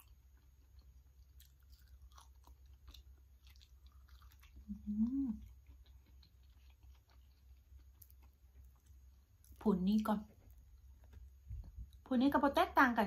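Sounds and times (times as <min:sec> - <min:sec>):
wet chewing: 0:00.0 - 0:11.2
person humming mmm: 0:04.6 - 0:05.5.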